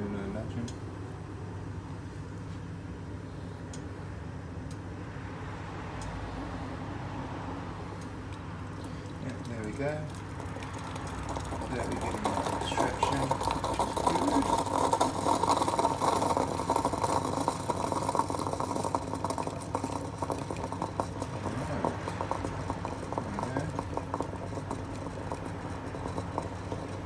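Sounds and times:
hot water spurting and spluttering: 8.3 - 27.0
small pops and crackles: 8.3 - 27.0.

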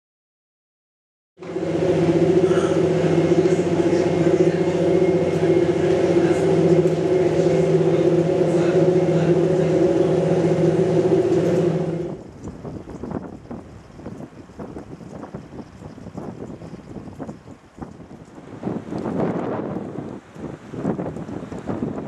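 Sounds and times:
train engine drone: 1.4 - 14.0
wind gusts on microphone: 1.4 - 22.0.

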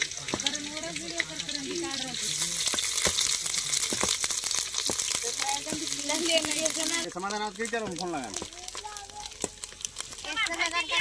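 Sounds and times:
hot oil sizzling and crackling: 0.0 - 11.0.

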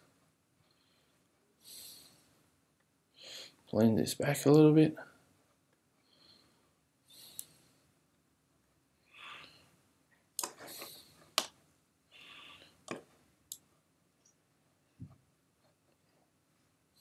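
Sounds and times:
soft breathy noise: 0.0 - 3.7, 5.0 - 8.1, 8.9 - 11.4, 12.0 - 13.3.

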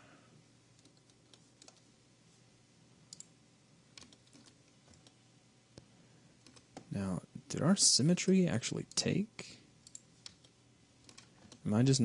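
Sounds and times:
computer mouse clicks: 0.8 - 1.9, 3.1 - 3.3, 3.9 - 5.2, 5.8 - 6.9, 9.8 - 11.7.

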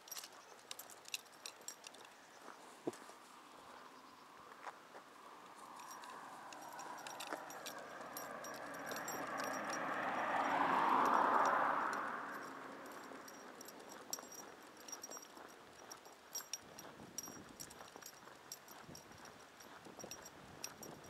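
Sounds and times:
dog harness clinking: 0.0 - 2.6, 5.6 - 21.0
vehicle passing: 5.1 - 16.5.

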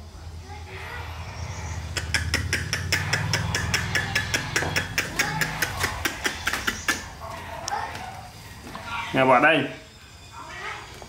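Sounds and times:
steady low hum: 0.0 - 11.0
rapid sharp clicks: 1.9 - 7.2.

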